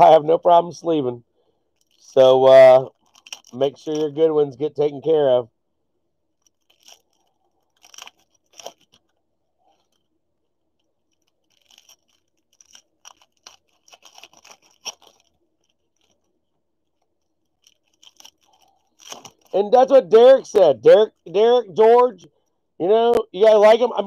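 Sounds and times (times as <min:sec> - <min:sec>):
plastic sleeve rustling: 0:01.7 - 0:04.2, 0:06.3 - 0:22.5.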